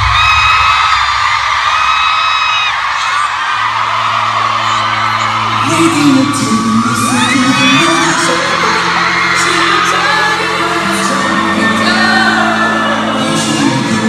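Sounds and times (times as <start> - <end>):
fans screaming: 0.0 - 14.0
pop song over concert speakers: 0.0 - 14.0
person singing live: 5.4 - 14.0.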